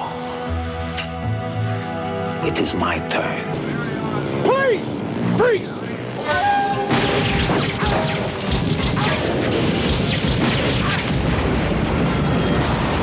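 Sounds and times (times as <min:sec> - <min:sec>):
film music: 0:00.0 - 0:13.0
explosions roaring: 0:06.0 - 0:13.0.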